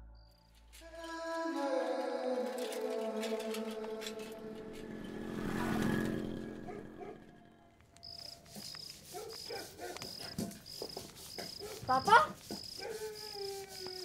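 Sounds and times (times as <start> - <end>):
film score: 0.0 - 8.3
high insect chirp: 8.0 - 14.0.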